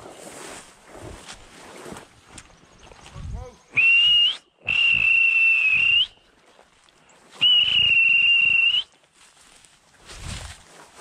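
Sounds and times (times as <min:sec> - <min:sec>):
dog whistle blasts: 0:07.4 - 0:08.8.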